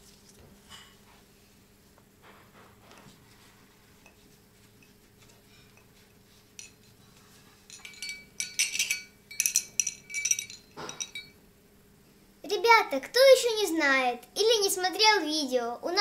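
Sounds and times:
metal medals clinking: 7.6 - 11.4.

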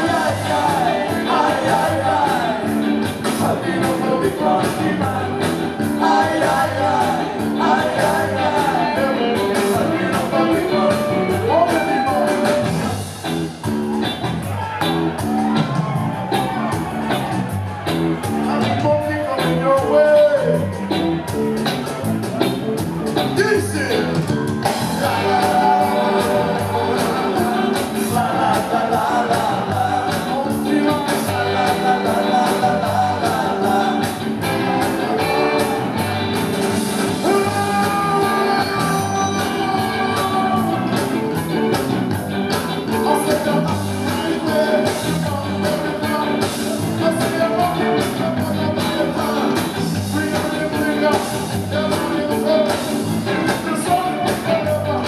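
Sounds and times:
man singing: 0.0 - 12.9, 18.4 - 20.8, 23.4 - 24.2, 24.9 - 35.8, 37.1 - 41.4, 42.8 - 55.0
bass guitar: 0.0 - 55.0
drums: 0.0 - 55.0
electric guitars: 0.0 - 55.0
keyboards: 0.0 - 55.0.

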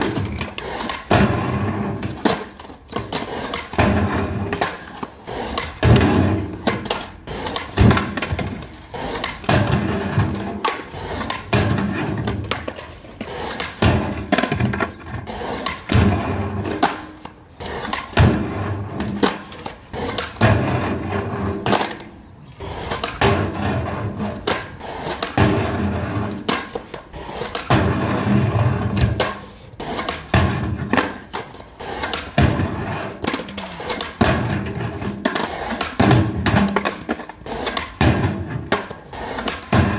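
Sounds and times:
skateboard clacks and thuds: 0.0 - 39.9
skateboard wheels rolling on concrete: 0.0 - 39.9.

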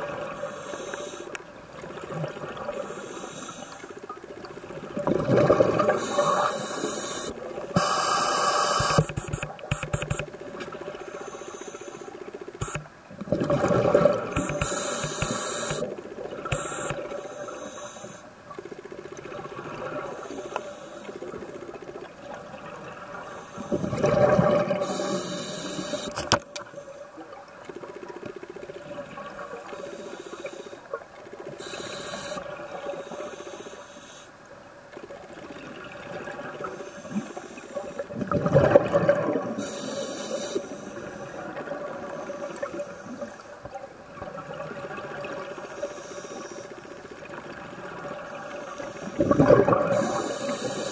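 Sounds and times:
hissing breaths through regulator: 0.4 - 1.4, 2.7 - 4.0, 5.8 - 10.2, 11.0 - 12.9, 14.3 - 15.9, 16.5 - 18.3, 20.1 - 21.6, 24.6 - 27.0, 29.5 - 30.9, 31.6 - 34.3, 39.5 - 43.6, 45.4 - 47.0, 48.2 - 50.9
exhaled bubbles rushing underwater: 4.4 - 7.8, 13.1 - 17.2, 21.9 - 26.0, 35.2 - 39.7, 47.1 - 50.9.

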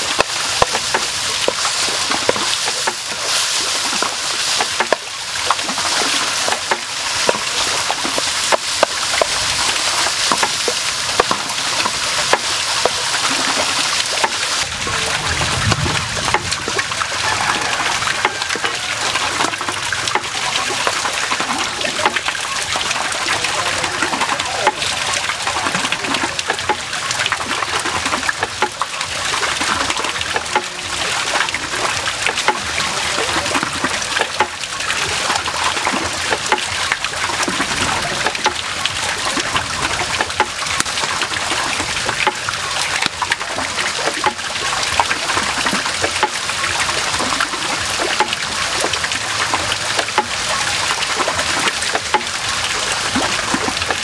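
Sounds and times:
meat and vegetables sizzling in wok: 0.0 - 14.6, 16.6 - 19.9
wooden spatula stirring: 0.0 - 14.6.

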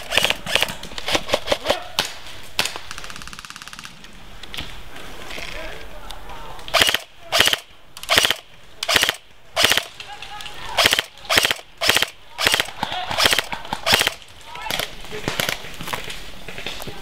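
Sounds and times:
airsoft rifle bursts: 6.7 - 9.9, 10.7 - 14.2.

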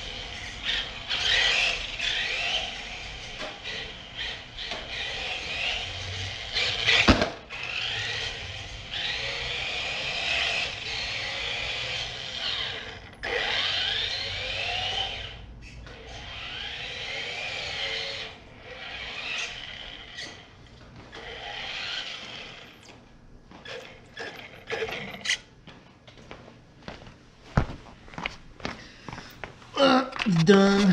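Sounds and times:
toy car electric motor whining: 0.0 - 20.5, 21.1 - 22.9, 23.6 - 25.5.

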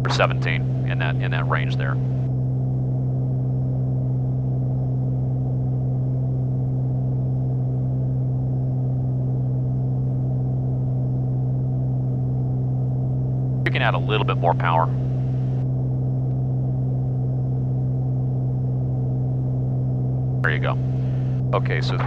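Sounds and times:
propeller aircraft engine droning: 0.0 - 22.0.

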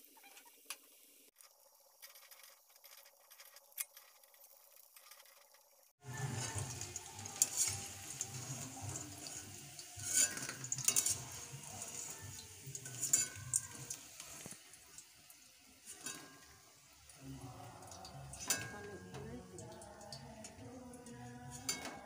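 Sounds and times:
food sizzling in hot oil: 0.0 - 22.0
metal spatula scraping a pan: 6.0 - 14.7, 15.7 - 19.6, 21.3 - 22.0.

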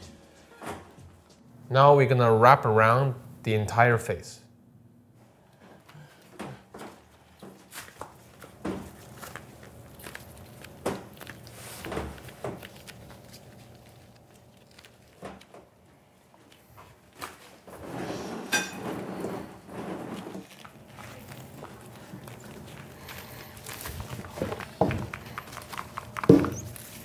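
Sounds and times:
candy scraping and rubbing: 7.7 - 15.2, 17.5 - 27.0.

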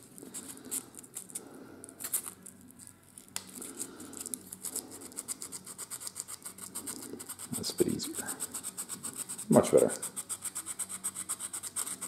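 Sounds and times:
sandpaper scratching wood: 5.1 - 12.0.

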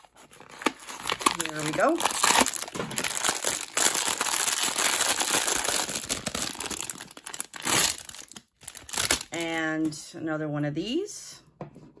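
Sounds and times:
foil bag crinkling: 0.0 - 9.4.

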